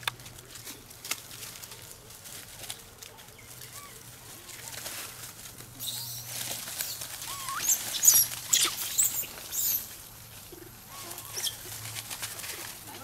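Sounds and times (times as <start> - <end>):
dry leaves rustling: 0.0 - 13.0
macaques squealing: 5.8 - 9.9, 10.9 - 11.6.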